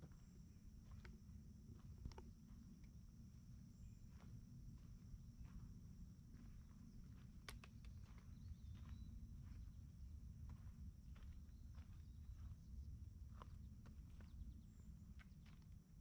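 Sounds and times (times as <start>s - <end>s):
footsteps on a forest trail: 6.3s - 15.9s.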